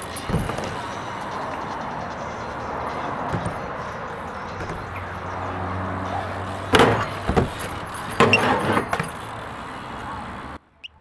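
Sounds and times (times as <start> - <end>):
bike clattering on metal ledge: 0.0 - 1.7, 6.6 - 9.5.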